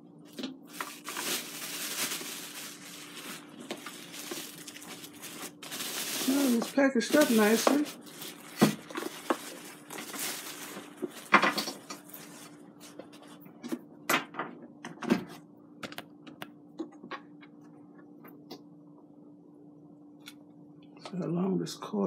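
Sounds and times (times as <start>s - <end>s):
plastic bag crinkling: 0.3s - 12.6s.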